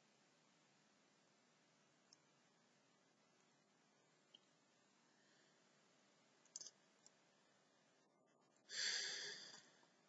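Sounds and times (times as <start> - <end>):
computer mouse clicks: 6.4 - 7.2
short breath: 8.7 - 9.8.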